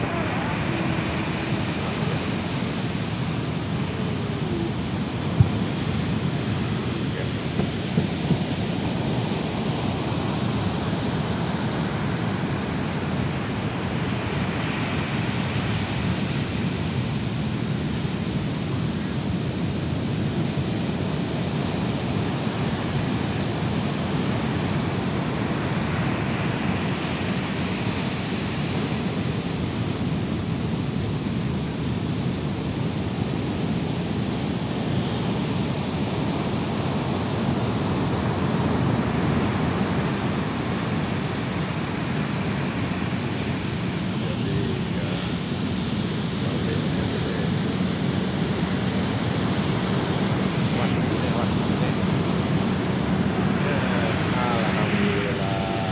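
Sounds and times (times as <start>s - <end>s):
ocean surf breaking on beach: 0.0s - 55.9s.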